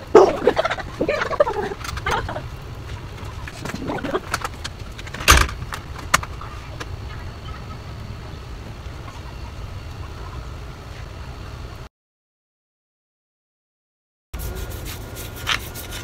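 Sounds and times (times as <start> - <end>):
steady low rumble: 0.0 - 11.9.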